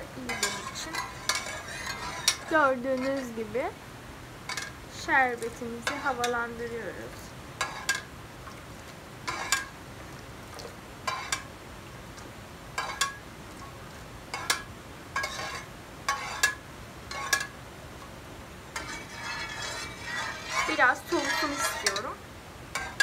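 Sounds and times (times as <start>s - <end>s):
metal spoon clinking against pot: 0.2s - 3.4s, 4.5s - 4.8s, 5.4s - 6.6s, 7.6s - 8.1s, 9.3s - 9.7s, 11.1s - 11.5s, 12.8s - 13.2s, 14.3s - 17.6s, 18.7s - 23.0s.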